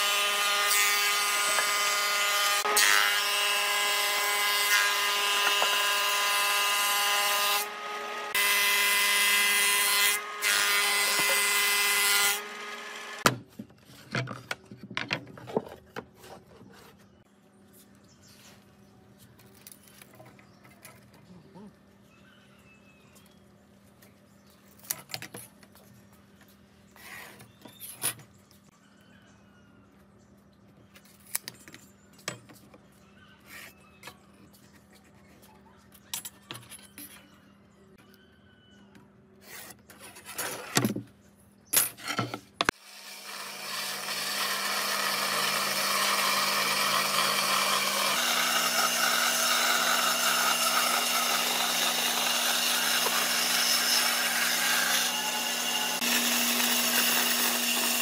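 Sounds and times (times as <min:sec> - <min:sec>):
jigsaw cutting wood: 0:00.0 - 0:13.4, 0:42.7 - 0:58.0.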